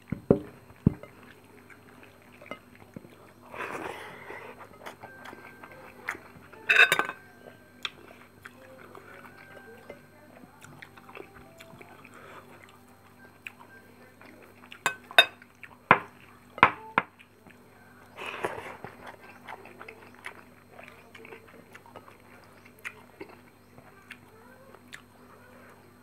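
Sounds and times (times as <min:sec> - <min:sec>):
chewing and eating sounds: 0:00.0 - 0:26.0
metal spoon clinking on plate: 0:06.6 - 0:07.2.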